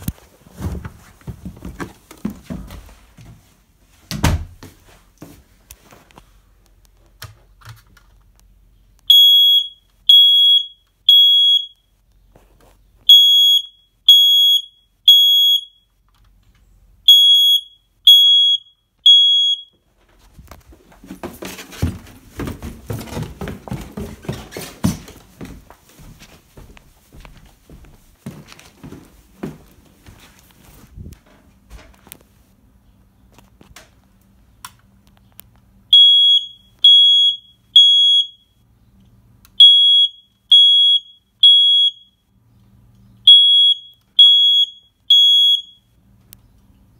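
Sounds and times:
footsteps: 0.0s - 6.4s, 19.9s - 32.4s
smoke alarm beeping: 9.1s - 11.8s, 13.1s - 15.9s, 17.0s - 19.8s, 35.9s - 38.6s, 39.6s - 42.2s, 43.2s - 46.0s.

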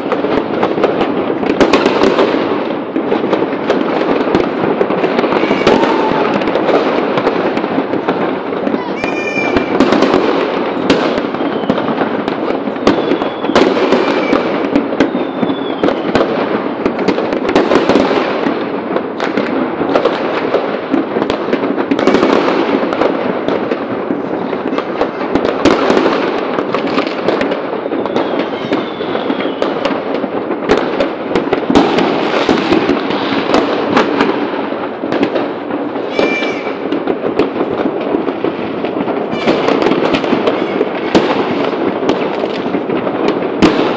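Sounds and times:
fireworks crackling and banging: 0.0s - 43.9s
firework whistles: 5.0s - 7.4s, 8.6s - 16.5s, 21.9s - 22.7s, 24.1s - 30.1s, 36.0s - 37.0s, 39.1s - 41.8s.

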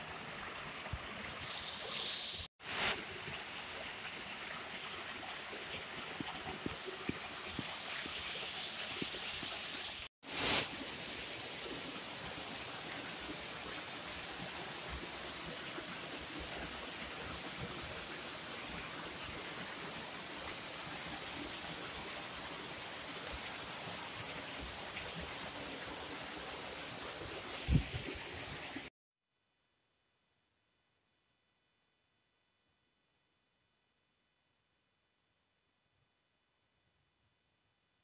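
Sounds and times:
waterfall rushing over rocks: 0.6s - 28.9s.

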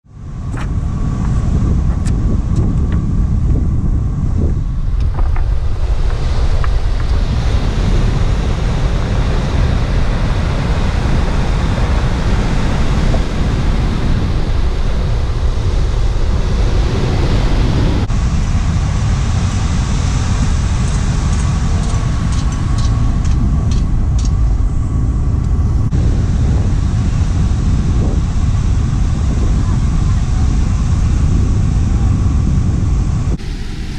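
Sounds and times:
wind buffeting microphone: 0.0s - 33.9s
breaking surf: 4.6s - 31.7s.

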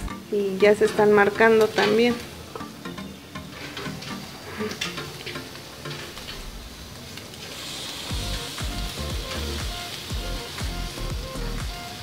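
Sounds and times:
ribs sizzling on a grill: 0.0s - 12.0s
soft background music: 0.0s - 12.0s.

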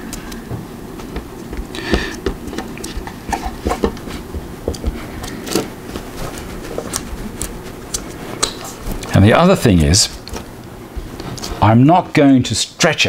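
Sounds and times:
adhesive tape rustling: 5.2s - 11.6s.

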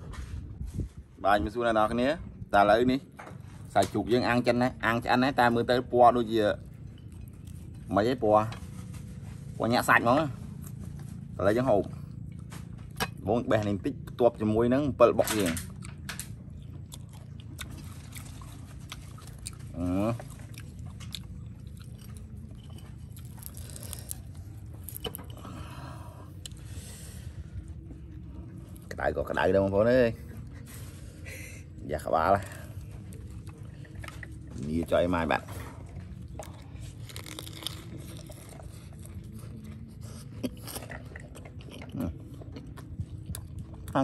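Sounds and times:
steady low rumble: 0.0s - 44.0s
chewing crunchy cabbage: 1.8s - 44.0s
crisp crust crackling: 17.4s - 25.4s.

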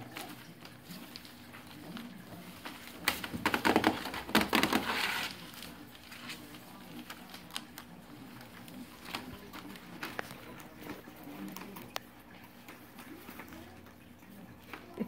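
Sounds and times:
newspaper rustling and crumpling: 0.0s - 12.0s
paws scratching and clicking: 0.0s - 15.0s.

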